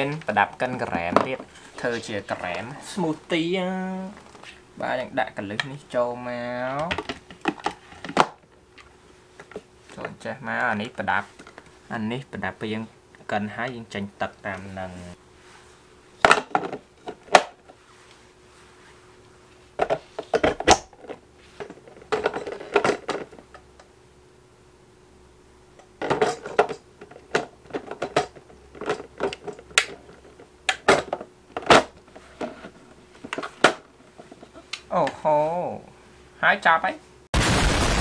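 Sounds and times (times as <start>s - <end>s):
plastic parts clicking and clattering: 6.8s - 8.4s, 16.2s - 17.5s, 19.8s - 23.6s, 26.0s - 34.8s.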